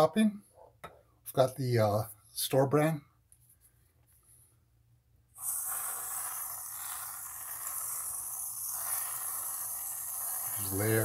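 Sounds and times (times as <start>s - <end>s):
aerosol can spraying cream: 5.4s - 11.0s.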